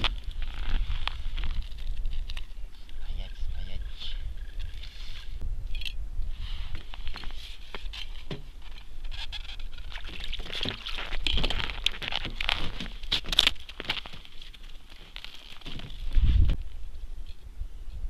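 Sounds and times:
slushy ice and snow scraping: 9.1s - 16.6s.

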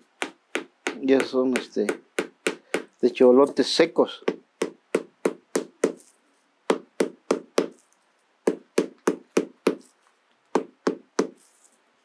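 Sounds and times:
hammer knocking on corncob: 0.0s - 3.0s, 4.2s - 6.0s, 6.7s - 7.8s, 8.5s - 9.9s, 10.6s - 11.4s.

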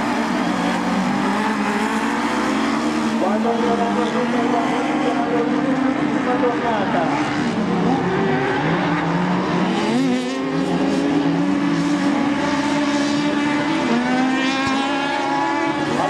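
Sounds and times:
buggy engines racing: 0.0s - 16.0s.

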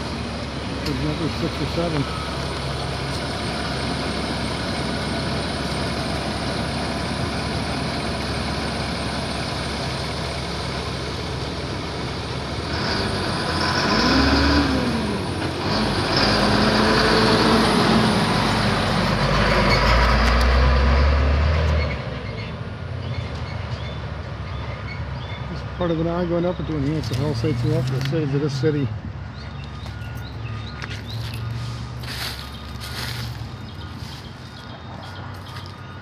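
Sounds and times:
diesel truck engine running: 0.0s - 36.0s.

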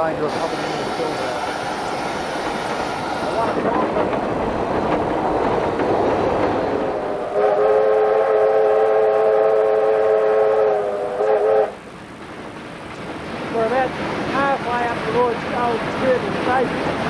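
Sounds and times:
steam locomotive running: 0.0s - 17.0s
steam whistle blast: 7.1s - 11.8s.

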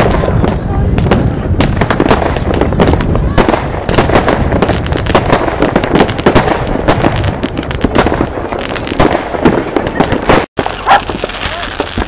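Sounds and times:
fireworks bangs and crackles: 0.0s - 12.0s
rockets bursting: 0.0s - 12.0s.

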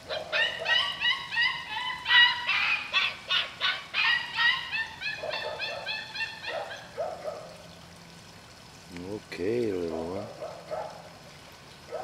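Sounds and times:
puppies yipping and whining: 0.0s - 7.4s.

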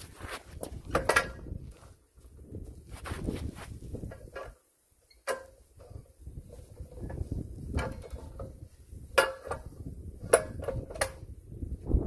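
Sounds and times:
low rumbling handling noise: 5.5s - 12.0s.

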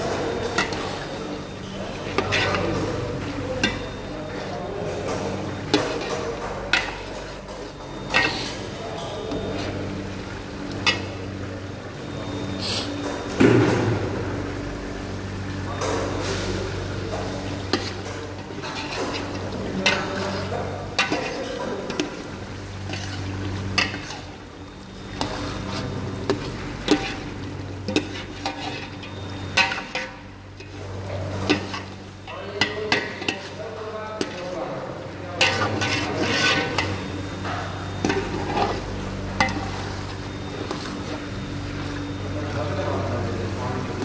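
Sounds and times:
steady low hum: 0.0s - 44.0s
metal spoon scraping a pot: 2.1s - 2.6s, 8.0s - 8.6s, 17.7s - 22.2s, 25.1s - 30.8s, 35.4s - 37.1s.

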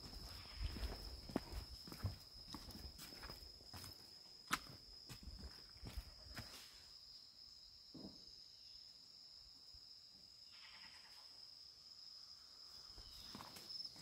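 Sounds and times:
footstep on wooden boardwalk: 0.0s - 6.6s
high-pitched insect drone: 5.2s - 14.0s
faint raspy animal call: 10.5s - 11.2s.

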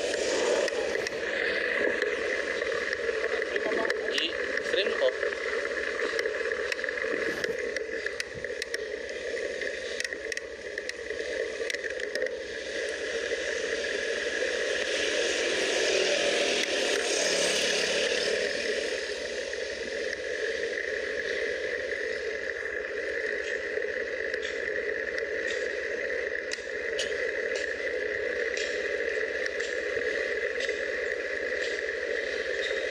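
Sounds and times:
bicycle tyre noise: 0.0s - 32.9s.

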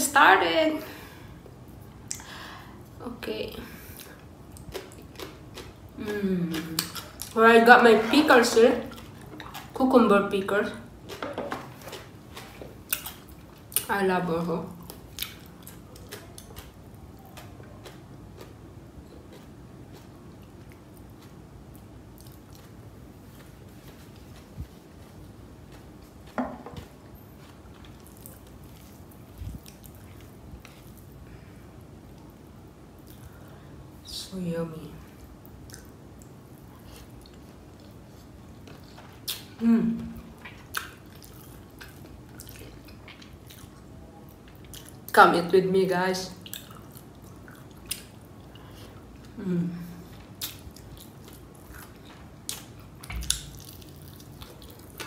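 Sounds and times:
close chewing mouth sounds: 3.9s - 7.4s, 8.8s - 9.9s, 11.0s - 13.9s, 14.7s - 31.5s, 35.2s - 45.2s, 46.3s - 55.0s
person humming mm: 49.4s - 50.1s.

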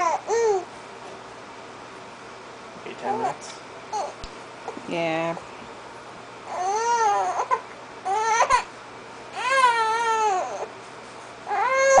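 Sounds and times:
baby crying: 6.5s - 8.7s, 9.4s - 10.7s, 11.5s - 12.0s.

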